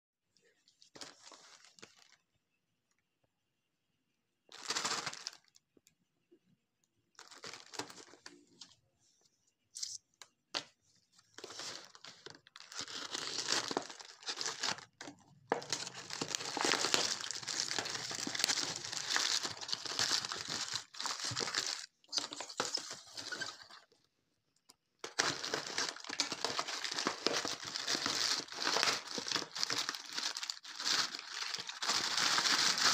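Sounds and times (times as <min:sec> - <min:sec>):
plastic wrap crinkling and tearing: 0:04.5 - 0:05.6, 0:11.4 - 0:23.9, 0:25.0 - 0:32.9.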